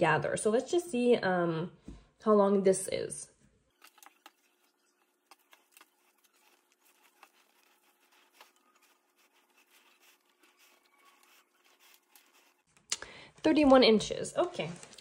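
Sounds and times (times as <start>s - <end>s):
cloth rustling: 3.7s - 12.9s.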